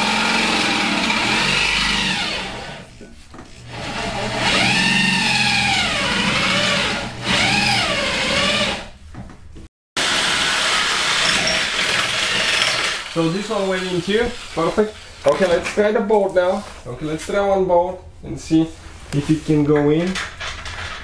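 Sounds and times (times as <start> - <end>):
electric drill drilling metal: 0.0 - 2.8, 3.8 - 8.8, 10.0 - 13.3.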